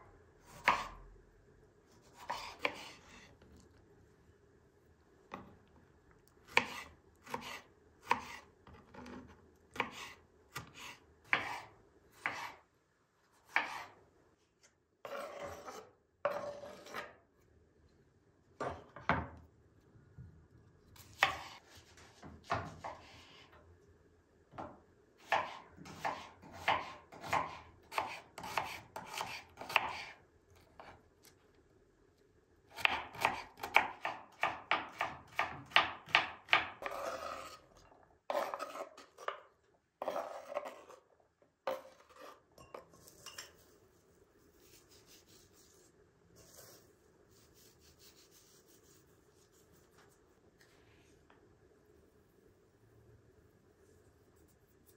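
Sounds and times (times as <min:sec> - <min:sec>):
knife slicing on cutting board: 0:02.1 - 0:03.2, 0:06.5 - 0:09.2, 0:09.8 - 0:12.6, 0:13.5 - 0:13.9
knife scraping board: 0:02.1 - 0:03.3, 0:06.5 - 0:12.6, 0:13.5 - 0:14.0, 0:15.0 - 0:17.2, 0:21.0 - 0:23.5, 0:25.3 - 0:30.2, 0:36.5 - 0:37.7, 0:38.3 - 0:39.4, 0:40.0 - 0:41.1, 0:41.7 - 0:43.7, 0:44.6 - 0:50.0.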